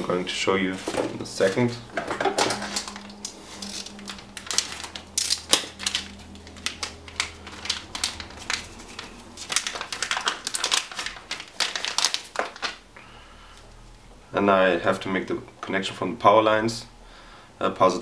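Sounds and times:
plastic bags crinkling: 0.7s - 12.9s.

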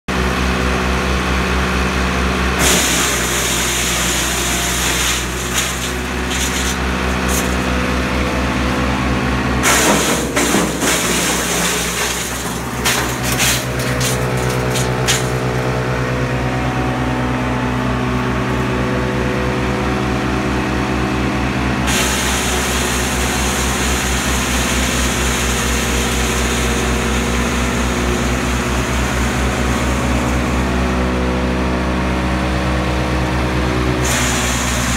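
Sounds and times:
tractor engine running: 0.1s - 34.9s
hiss of shredded material: 2.6s - 7.6s, 21.9s - 25.4s, 34.0s - 34.9s
branches crackling and snapping: 5.0s - 7.9s, 11.7s - 15.7s.

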